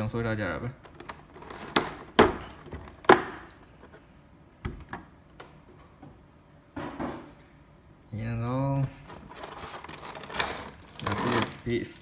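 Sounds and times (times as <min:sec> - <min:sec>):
plastic bag rustle: 0:09.2 - 0:12.0.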